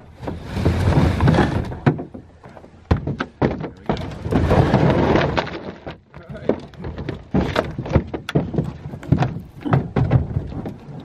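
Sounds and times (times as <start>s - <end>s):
scraping and sliding: 0.0s - 11.0s
snowmobile bumping against truck bed: 2.8s - 5.6s.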